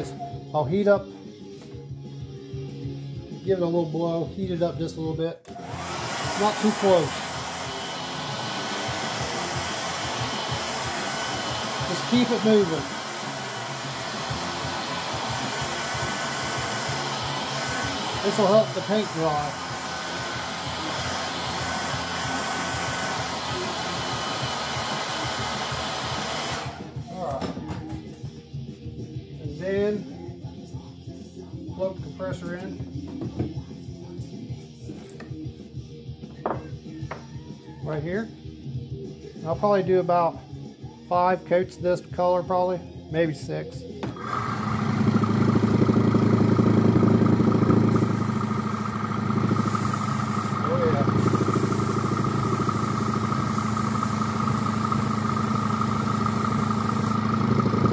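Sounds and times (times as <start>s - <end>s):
airbrush compressor buzzing: 5.5s - 27.0s, 44.0s - 57.9s
hair dryer running: 5.5s - 27.1s, 44.0s - 57.9s.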